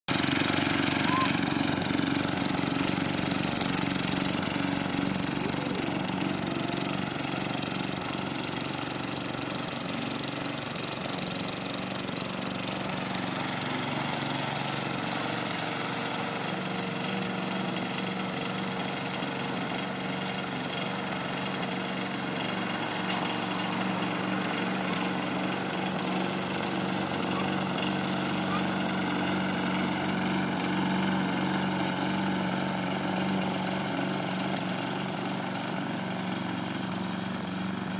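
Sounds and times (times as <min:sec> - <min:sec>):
lawn mower engine running: 0:00.1 - 0:37.9.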